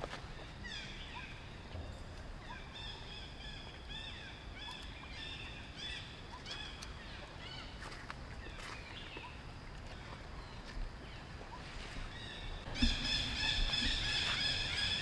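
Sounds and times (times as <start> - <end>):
low rumble: 1.5 - 3.9.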